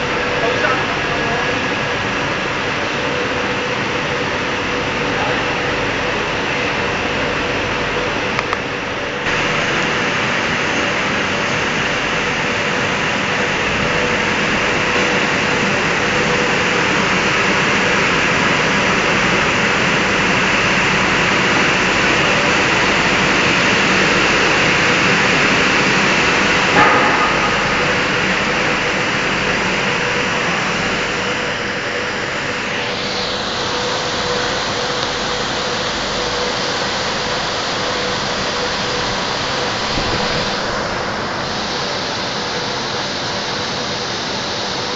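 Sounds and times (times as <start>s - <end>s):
printing machine whirring hiss: 0.0s - 44.9s.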